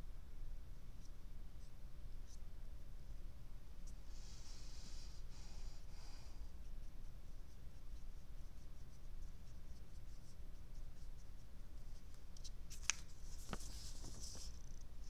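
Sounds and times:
paper rustling: 12.4s - 14.8s.

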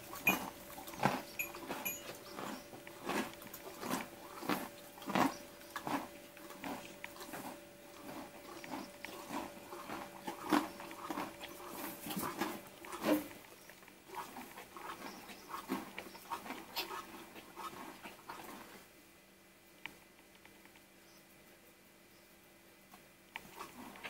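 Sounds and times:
horse chewing: 0.0s - 18.9s, 23.4s - 24.0s.

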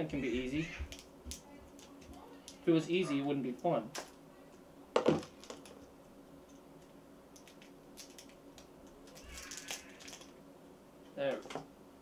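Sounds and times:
plastic packaging clicks and rattles: 7.4s - 10.3s.

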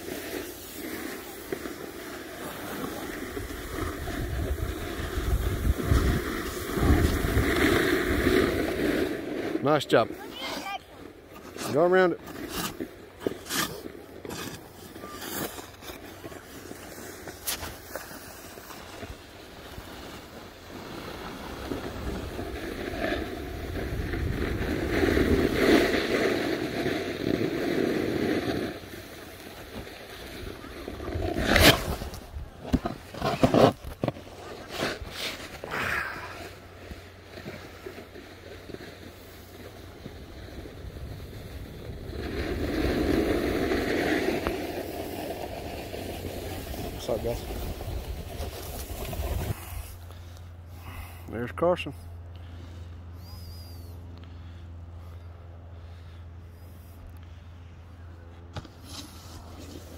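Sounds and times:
board sliding on snow: 0.0s - 51.0s, 58.4s - 59.9s
wind noise on microphone: 3.9s - 7.6s.

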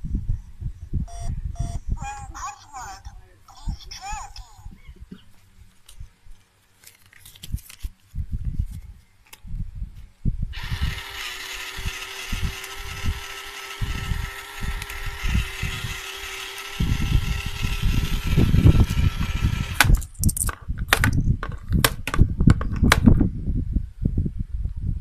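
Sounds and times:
small electric motor running: 10.6s - 20.0s.

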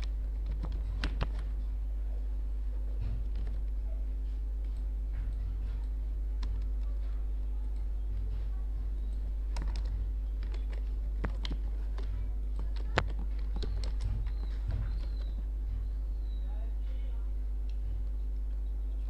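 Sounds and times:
keyboard keystrokes: 0.0s - 1.5s, 3.1s - 3.8s, 4.6s - 8.3s, 9.1s - 15.4s
steady low hum: 0.0s - 19.0s.

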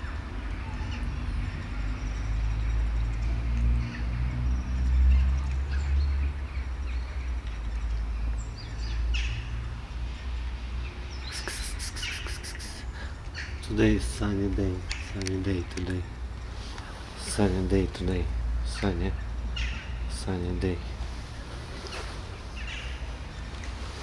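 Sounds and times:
sharp clicks: 14.8s - 16.0s.

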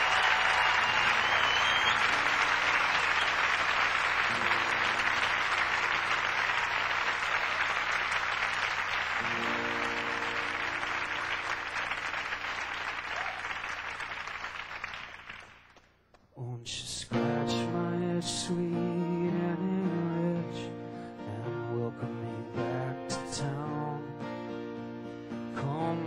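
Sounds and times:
audience applauding: 0.0s - 15.9s.

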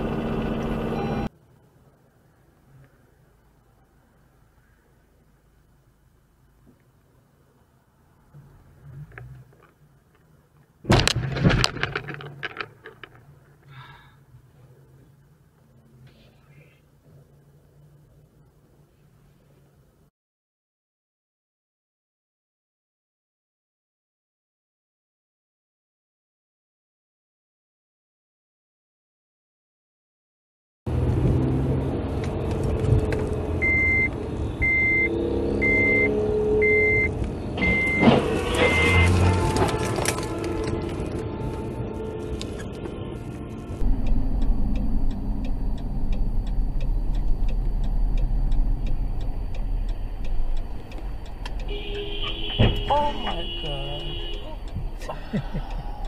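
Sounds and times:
car engine and road noise: 0.0s - 20.1s, 30.9s - 56.0s
car collision crunch: 10.8s - 13.3s, 37.6s - 41.0s, 51.7s - 54.9s
cracking and clattering: 10.9s - 13.7s, 38.0s - 41.2s
electronic warning beeps: 33.6s - 38.1s, 43.9s - 54.7s.

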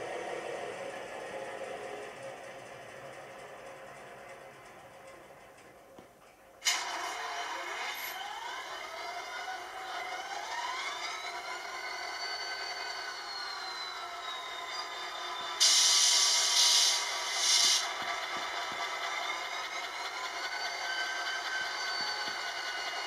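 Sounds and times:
diesel engine whine: 0.0s - 23.0s
air hiss bursts: 15.6s - 17.9s.

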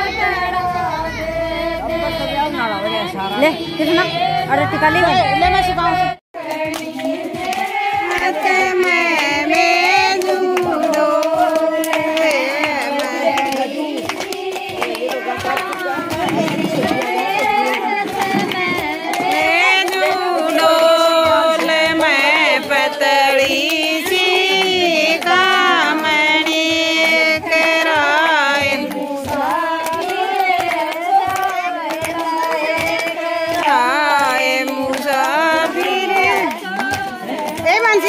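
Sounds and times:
woman singing: 0.0s - 38.0s.

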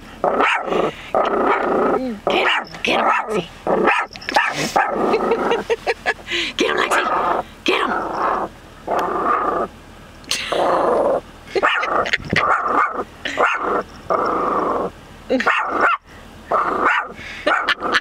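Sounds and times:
small dog barking and growling: 0.2s - 5.7s, 11.0s - 18.0s.

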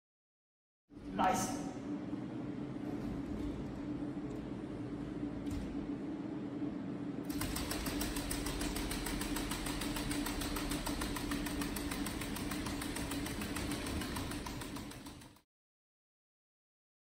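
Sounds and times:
robot leg motors humming and ticking: 7.3s - 15.4s.

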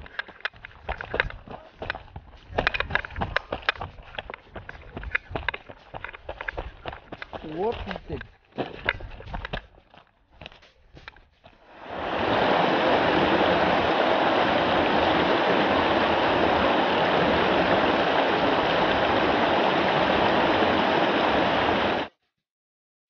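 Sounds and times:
stream cascading over rocks: 11.7s - 22.1s.

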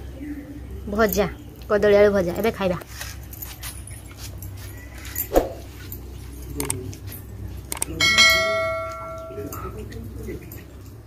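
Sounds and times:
bright bell chime: 8.0s - 9.8s.

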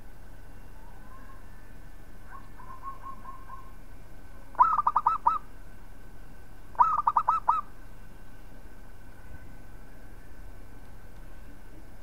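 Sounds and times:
dove cooing: 2.3s - 3.8s, 4.6s - 5.5s, 6.8s - 7.7s.

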